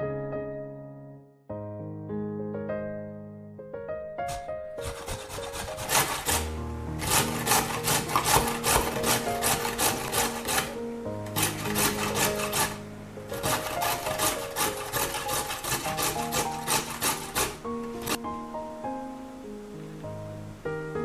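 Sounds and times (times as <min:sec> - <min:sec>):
soft background music: 0:00.0 - 0:21.0
carrot grated on metal grater: 0:04.3 - 0:18.2.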